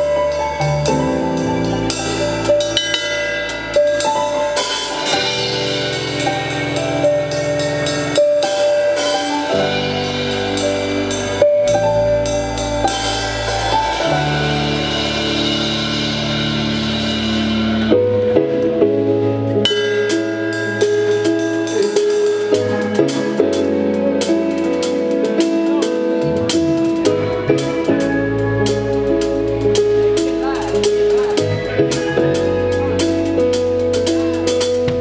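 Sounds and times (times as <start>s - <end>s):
snare and cymbal hits: 0.0s - 18.1s
live band playing: 0.0s - 35.0s.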